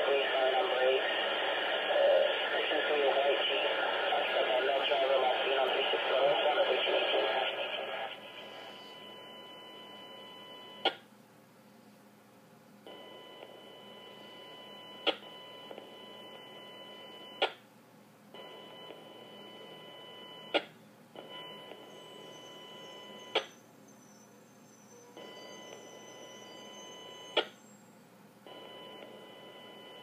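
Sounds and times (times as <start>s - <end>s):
high-pitched radio tones: 0.0s - 10.9s, 21.7s - 23.6s, 24.2s - 27.6s.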